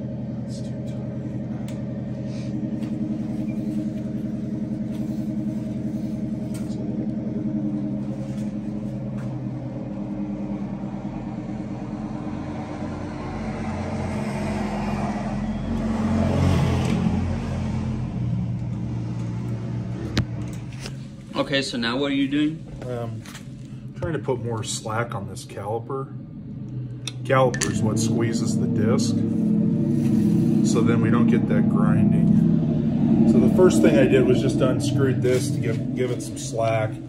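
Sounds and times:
steady engine hum: 0.0s - 37.0s.

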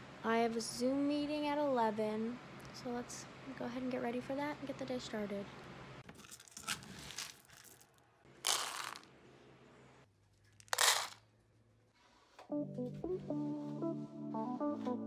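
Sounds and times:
kibble rattling into plastic bowl: 8.4s - 9.1s, 10.6s - 11.2s.

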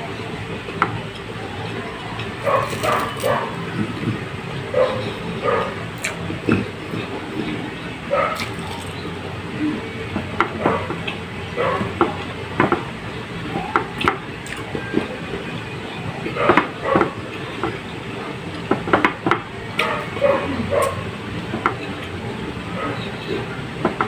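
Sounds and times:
steady background noise: 0.0s - 24.0s
chewing and lip smacks: 8.4s - 9.0s.

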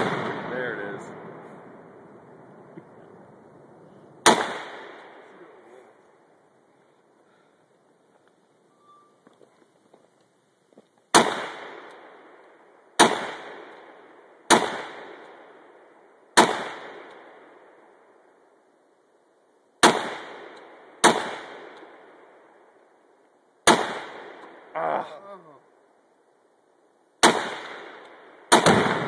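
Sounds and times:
rifle shots with echo: 0.0s - 3.2s, 4.2s - 5.7s, 11.1s - 18.2s, 19.8s - 22.7s, 23.6s - 24.7s, 27.2s - 29.0s.

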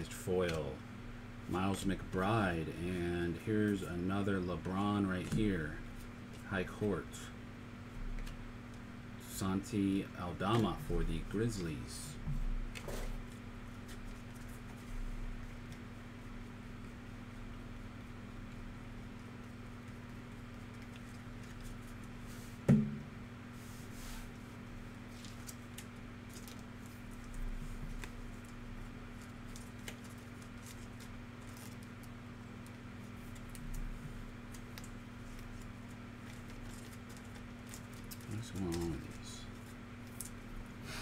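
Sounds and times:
steady low hum: 0.0s - 41.0s
sharp knock on table: 22.7s - 23.1s
cards rustling: 25.1s - 40.4s.

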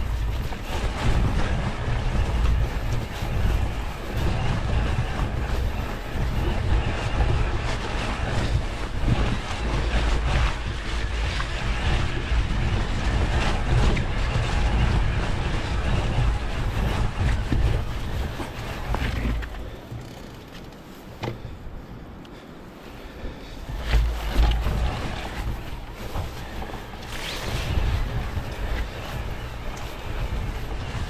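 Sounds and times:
bike knocking and rattling: 0.0s - 21.6s, 23.6s - 31.0s
wind on microphone: 0.0s - 31.0s.

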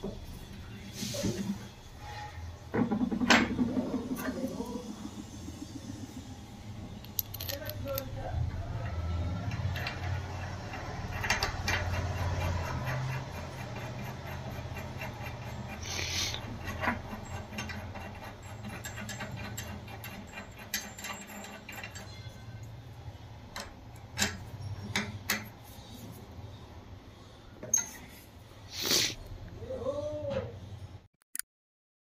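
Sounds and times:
bolt clicking and scraping in metal: 8.8s - 22.2s
spanner clicking on bolt: 8.8s - 22.2s.

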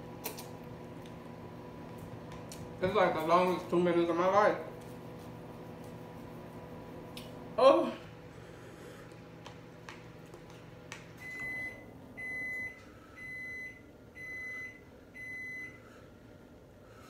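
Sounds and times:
timer alarm beeping: 11.2s - 15.8s.

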